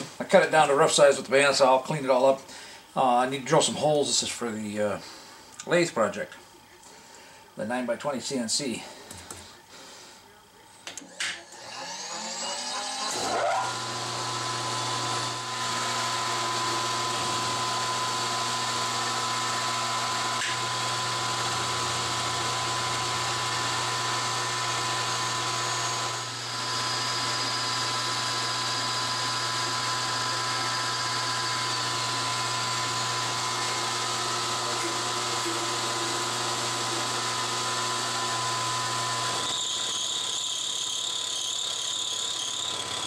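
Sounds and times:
drill press motor running: 0:11.0 - 0:43.0
drill boring into metal plate: 0:11.4 - 0:43.0.

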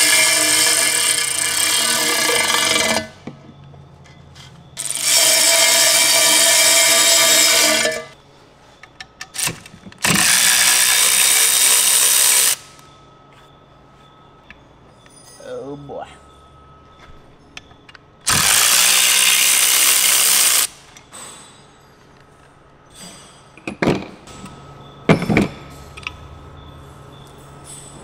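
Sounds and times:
electric ratchet running: 0:00.0 - 0:03.1, 0:04.8 - 0:08.2, 0:09.4 - 0:12.7, 0:18.3 - 0:20.7.

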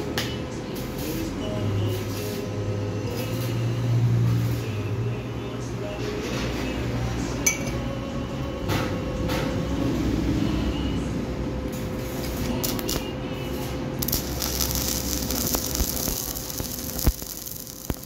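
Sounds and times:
constant hum: 0:00.0 - 0:18.0
welding arc crackling hiss: 0:12.0 - 0:18.0
electrode taps and scratches: 0:14.0 - 0:18.0.

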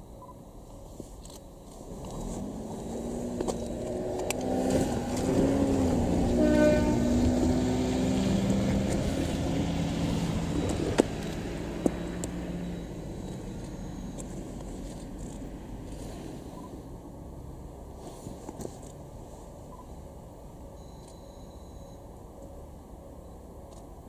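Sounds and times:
diesel railcar engines running: 0:01.2 - 0:18.1.

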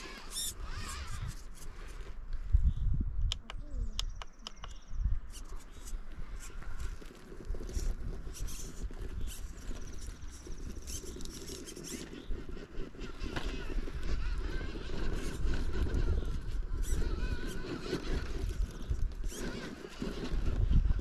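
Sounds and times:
electric motor whining: 0:00.0 - 0:01.7, 0:07.7 - 0:21.0
wind rumbling on microphone: 0:00.0 - 0:21.0
tyres and stones crackling on rock: 0:05.4 - 0:21.0.

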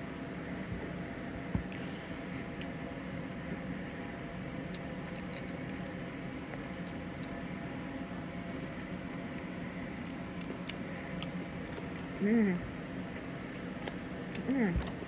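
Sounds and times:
low hum of room noise: 0:00.0 - 0:15.0
person chewing: 0:02.4 - 0:03.3, 0:04.2 - 0:07.9, 0:08.5 - 0:12.1, 0:13.2 - 0:15.0.

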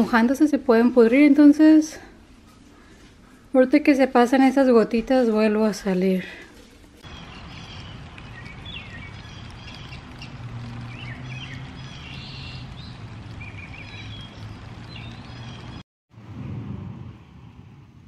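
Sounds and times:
small birds chirping: 0:07.0 - 0:15.8.

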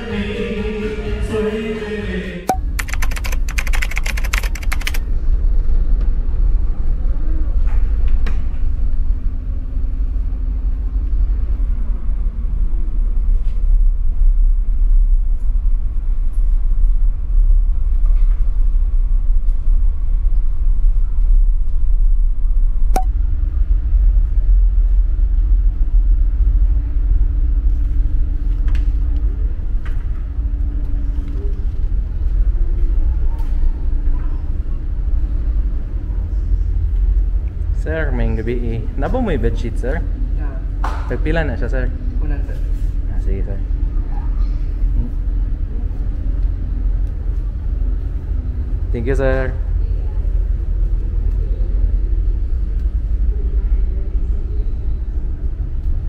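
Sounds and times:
ferry engines rumbling: 0:23.1 - 0:56.0.

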